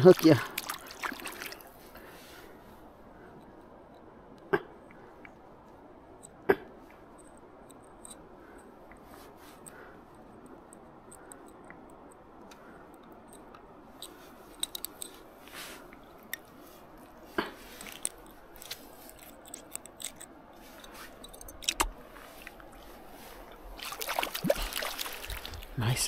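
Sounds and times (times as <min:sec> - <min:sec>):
low background hiss: 0:00.0 - 0:26.0
hands handling fish clicks: 0:10.4 - 0:15.2, 0:17.8 - 0:22.7.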